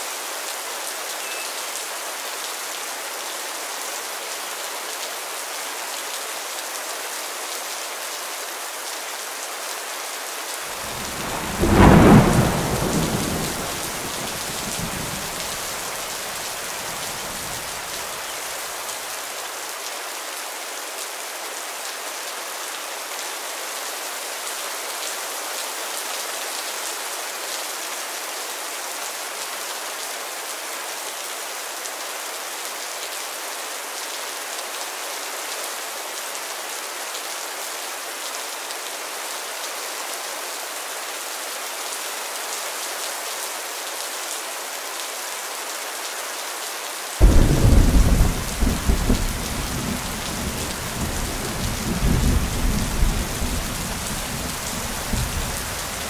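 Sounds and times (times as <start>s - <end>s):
steady rain: 0.0s - 56.0s
thunder rolling: 10.8s - 15.8s.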